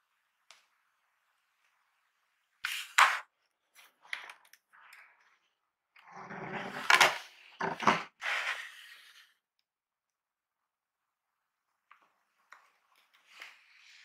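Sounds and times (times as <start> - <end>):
cardboard scraping and rubbing: 6.2 - 9.3.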